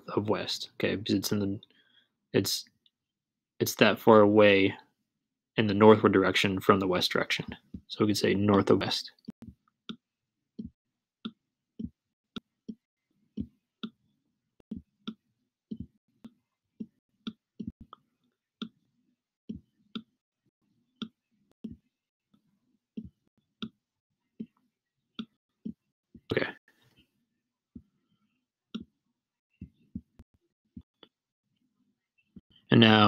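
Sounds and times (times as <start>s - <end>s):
stylus clicking on tablet screen: 14.6s - 18.9s.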